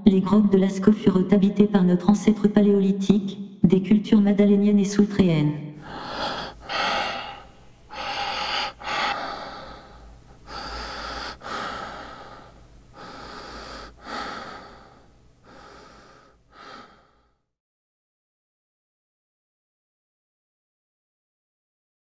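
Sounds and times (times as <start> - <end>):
heavy breathing: 5.8 - 17.4.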